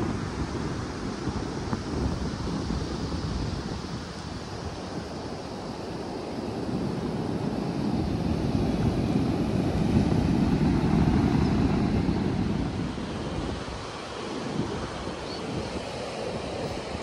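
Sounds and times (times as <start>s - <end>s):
wind rumbling on microphone: 0.0s - 17.0s
ocean surf breaking: 5.6s - 17.0s.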